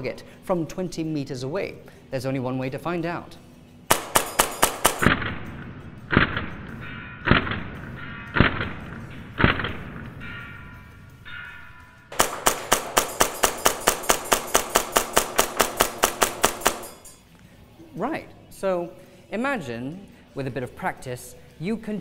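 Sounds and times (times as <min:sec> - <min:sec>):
music: 0:00.0 - 0:22.0
airsoft pistol shots: 0:03.9 - 0:06.7, 0:07.3 - 0:10.0, 0:12.1 - 0:16.9
echoing hits: 0:03.9 - 0:17.2.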